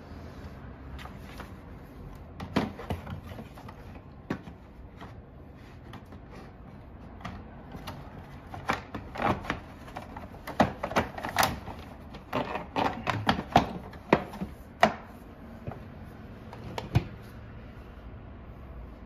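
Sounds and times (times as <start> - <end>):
plastic fan cover clicks and knocks: 7.2 - 15.1.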